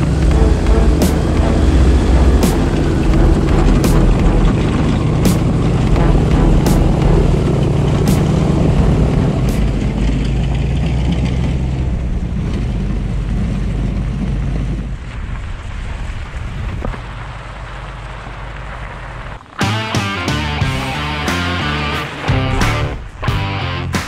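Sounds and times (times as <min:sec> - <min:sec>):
airboat engine and propeller drone: 0:00.0 - 0:15.1.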